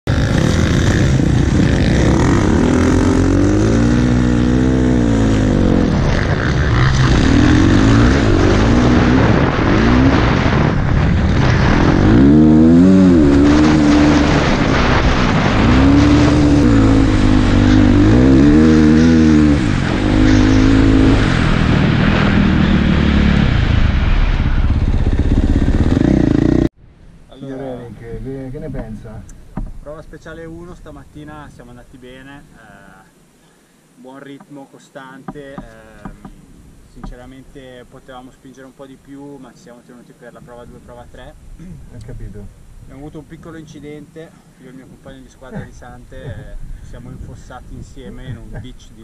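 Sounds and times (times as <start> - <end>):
motorcycle engine revving: 0.1 - 26.7.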